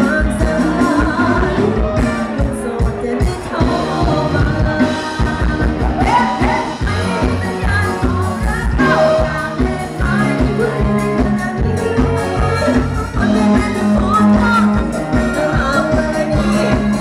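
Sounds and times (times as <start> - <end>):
electric guitar: 0.0 - 17.0
person singing: 0.0 - 17.0
drum beat: 1.0 - 9.5.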